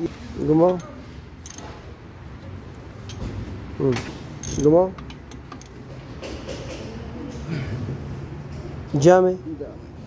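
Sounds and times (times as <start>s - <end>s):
metallic tool clicks and knocks: 0.7s - 1.7s.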